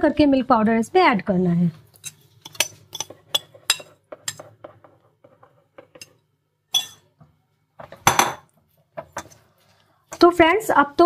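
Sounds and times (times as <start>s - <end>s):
utensils clinking against wok: 2.0s - 4.8s, 5.8s - 7.1s, 9.0s - 9.4s.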